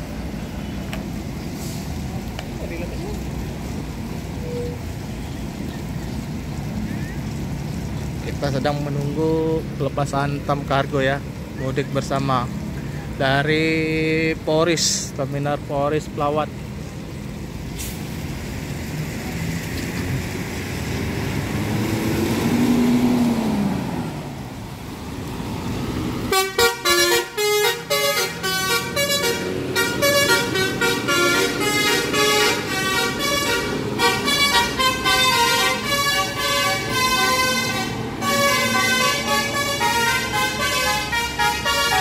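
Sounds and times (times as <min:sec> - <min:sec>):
bus engine passing: 0:00.0 - 0:14.2, 0:16.4 - 0:42.0
multi-tone bus air horn tune: 0:26.3 - 0:42.0.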